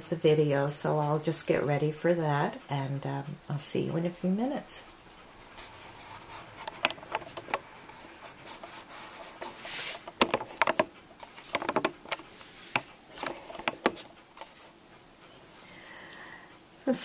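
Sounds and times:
objects being handled: 5.4 - 14.8.

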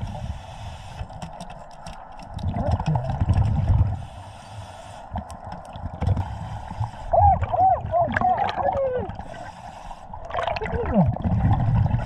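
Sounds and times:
gear clicks and knocks: 1.0 - 3.7
underwater exhaust bubbles rumbling: 2.3 - 4.1, 5.2 - 12.0.

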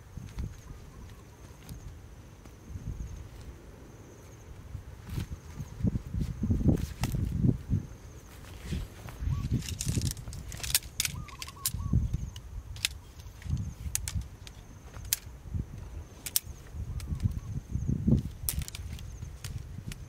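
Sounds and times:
wind buffeting microphone: 0.0 - 20.0
metal tent poles clicking: 9.3 - 15.3, 16.1 - 17.5, 18.2 - 20.0.

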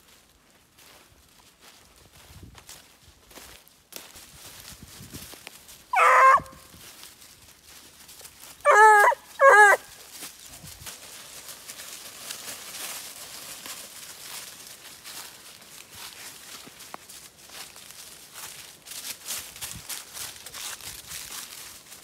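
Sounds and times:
rustle of dry leaves underfoot: 0.0 - 22.0
hound baying: 5.9 - 6.7, 8.6 - 10.0.

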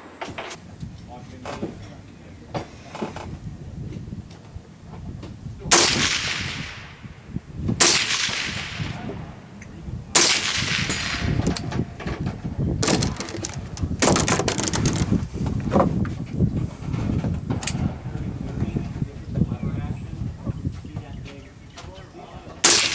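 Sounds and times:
quiet sharp cracks: 5.7 - 7.0, 7.8 - 11.8, 22.6 - 22.9
gunshots echoing: 5.7 - 7.2, 7.8 - 12.0, 22.6 - 22.9.

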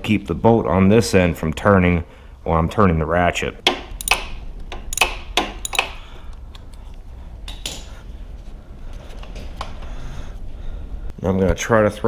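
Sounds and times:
ratchet clicking on bolt: 3.7 - 6.0.

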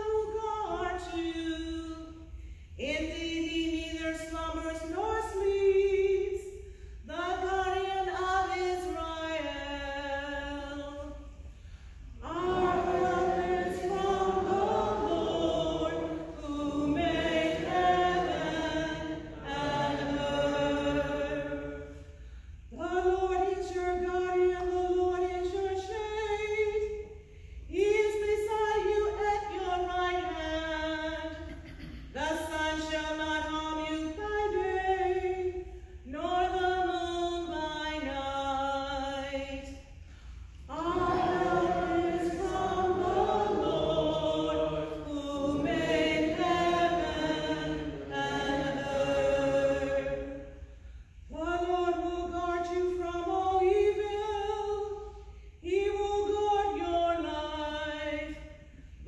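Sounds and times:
voices singing a refrain: 12.2 - 21.9, 40.7 - 50.5.

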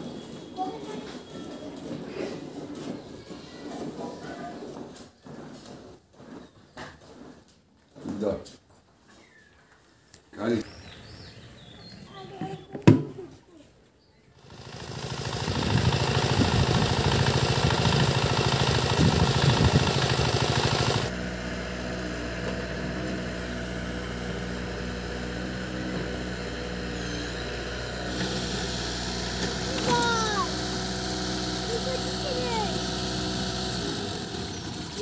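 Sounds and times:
diesel pump engine running: 14.4 - 35.0.

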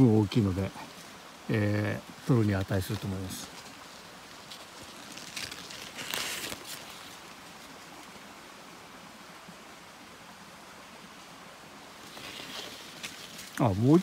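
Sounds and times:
faint outdoor hiss: 0.0 - 14.0
glove rustling against plant stems: 2.2 - 8.1, 12.0 - 14.0.

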